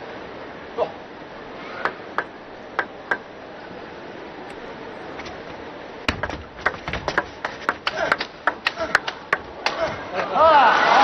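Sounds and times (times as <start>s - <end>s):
arena hum: 0.0s - 10.4s
table tennis ball bouncing: 1.9s - 3.2s, 6.1s - 9.8s.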